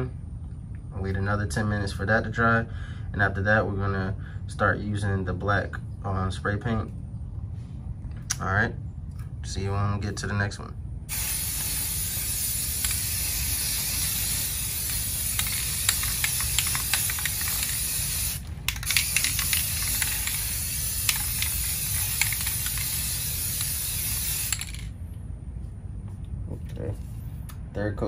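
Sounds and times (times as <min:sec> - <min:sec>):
aerosol spray hissing: 0:11.1 - 0:24.8.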